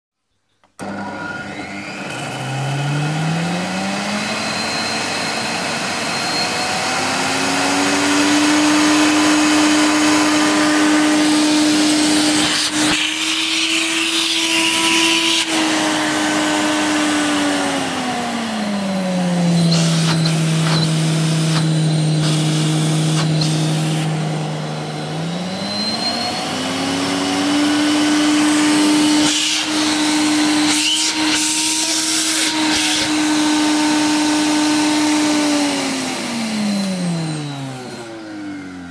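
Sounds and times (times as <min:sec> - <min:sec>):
vacuum cleaner motor whining: 0:00.7 - 0:38.9.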